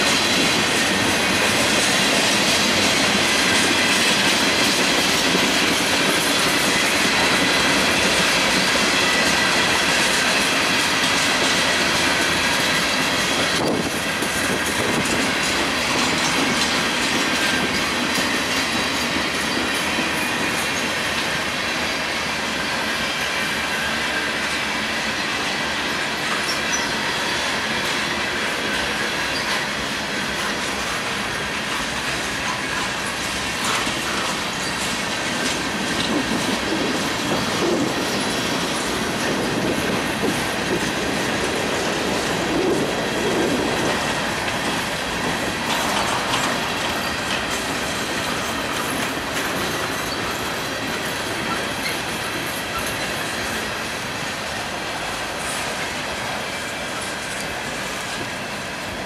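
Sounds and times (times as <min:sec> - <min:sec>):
wheels clicking over rail joints: 0:00.0 - 0:21.9, 0:24.5 - 0:59.0
freight train cars rolling past: 0:00.0 - 0:59.0
faint high wheel squeal: 0:21.9 - 0:29.8.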